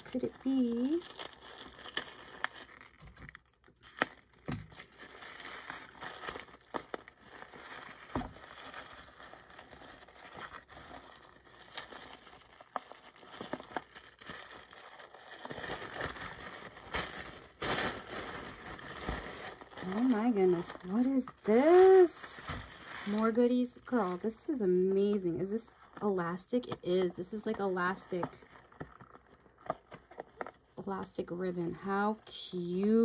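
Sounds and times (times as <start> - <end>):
tissue paper rustling: 4.7 - 28.8.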